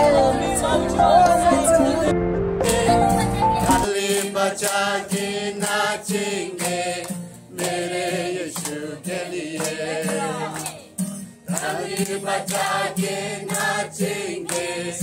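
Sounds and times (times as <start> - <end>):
group singing gospel chorus: 0.0 - 10.8, 11.4 - 15.0
hand claps: 2.6 - 3.0, 3.6 - 15.0.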